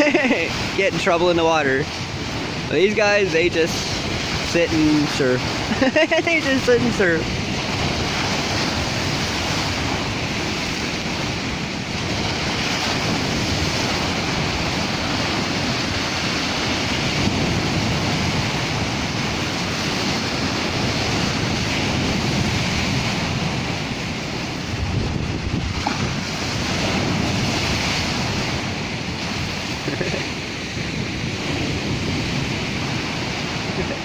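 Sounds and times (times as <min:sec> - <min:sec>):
surf breaking on shore: 0:00.0 - 0:34.0
wind on microphone: 0:00.0 - 0:34.0.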